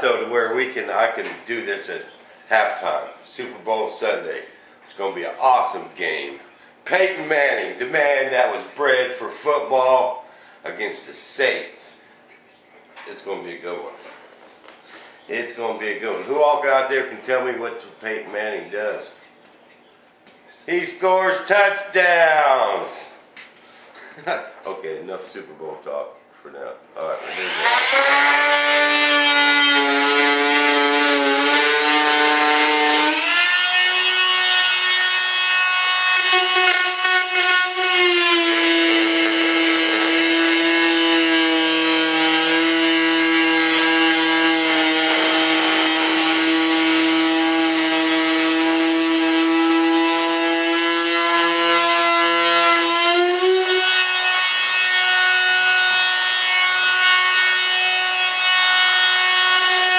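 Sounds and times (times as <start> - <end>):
rotary tool whining: 27.0 - 59.9.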